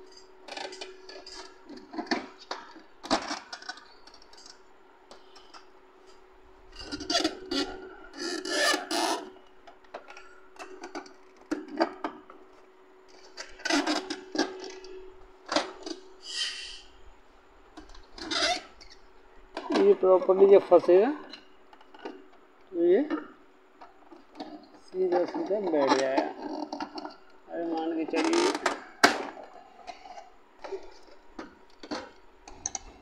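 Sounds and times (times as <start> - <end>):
faint steady hum: 0.0 - 33.0
plastic clicks knocks and scraping: 28.1 - 33.0.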